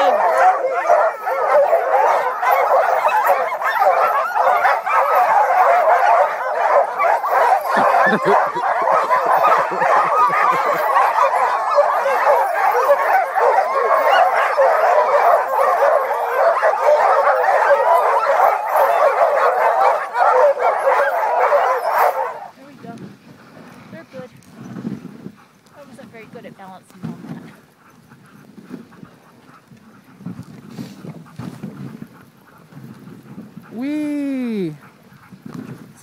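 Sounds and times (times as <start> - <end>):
sled dogs barking and yelping: 0.0 - 36.0.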